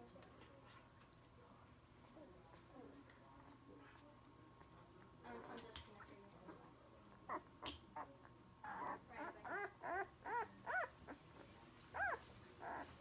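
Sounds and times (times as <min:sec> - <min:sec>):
puppies whimpering: 0:07.2 - 0:11.0
soft rustling: 0:10.3 - 0:13.0.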